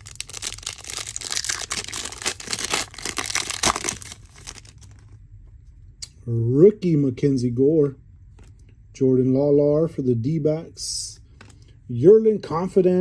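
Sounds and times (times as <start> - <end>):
wrapper tearing and crinkling: 0.0 - 5.2.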